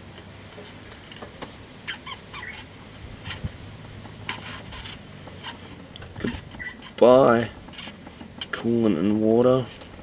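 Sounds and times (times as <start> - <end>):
light clicks and scrapes: 0.5 - 10.0
short squeaky chirps: 1.8 - 3.4, 6.5 - 7.0.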